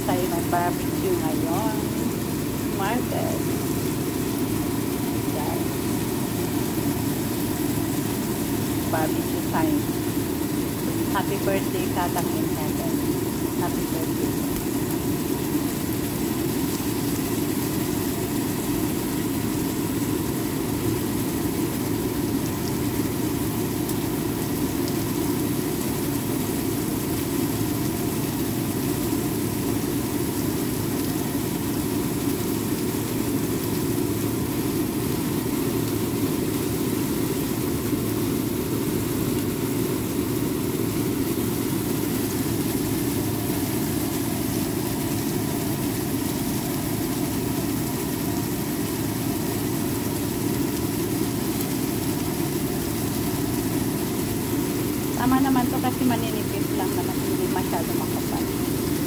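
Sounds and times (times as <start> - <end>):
meat sizzling on grill: 0.0 - 59.0
mechanical fan drone: 0.0 - 59.0.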